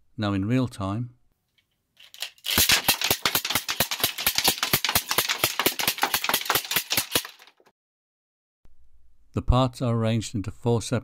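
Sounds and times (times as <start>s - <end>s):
rapid plastic clicks: 2.0s - 7.7s.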